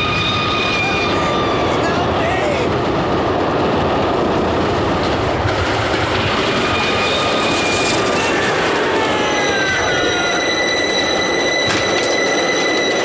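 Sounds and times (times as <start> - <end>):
high squeals sliding down: 0.0 - 1.8, 6.5 - 13.0
train rushing rumble: 0.0 - 13.0.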